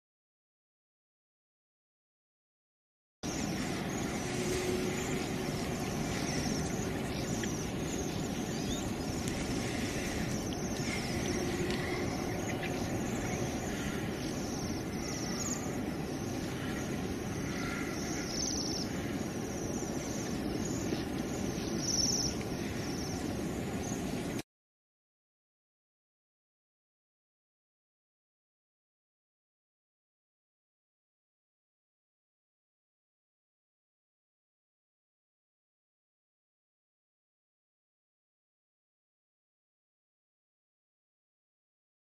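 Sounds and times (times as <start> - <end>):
steady rushing noise: 3.2 - 24.4
faint bird chirps: 3.3 - 24.0.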